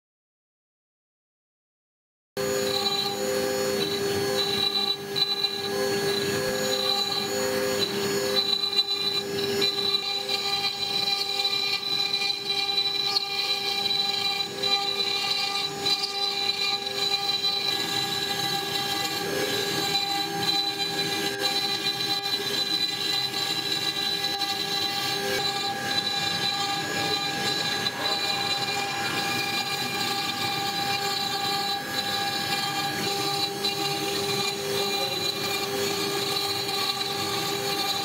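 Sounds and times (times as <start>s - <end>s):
cutter grinding stone: 2.4s - 38.0s
router spindle whine: 2.4s - 38.0s.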